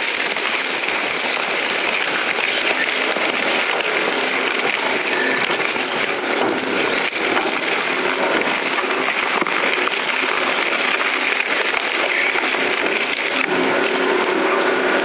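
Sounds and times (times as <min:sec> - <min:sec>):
industrial shredder crunching: 0:00.0 - 0:15.0.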